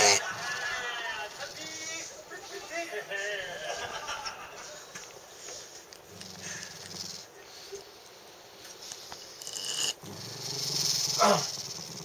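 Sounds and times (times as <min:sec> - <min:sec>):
dog growling low: 0:09.7 - 0:12.0.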